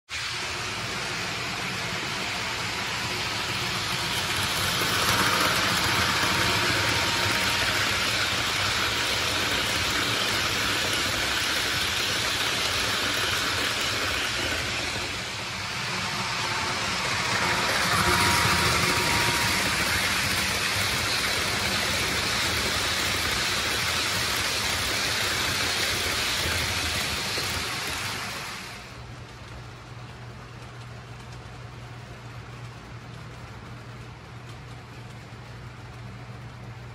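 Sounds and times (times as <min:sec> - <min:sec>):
model train running on track: 0:00.1 - 0:36.9.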